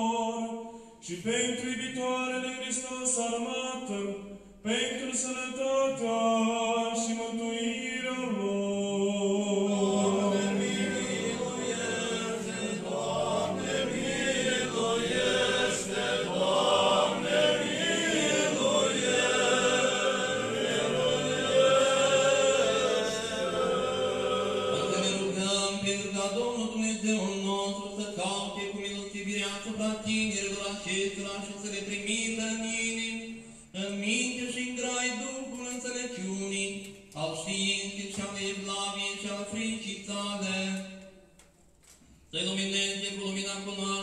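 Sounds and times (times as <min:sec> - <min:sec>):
group of voices chanting: 0:09.6 - 0:25.4.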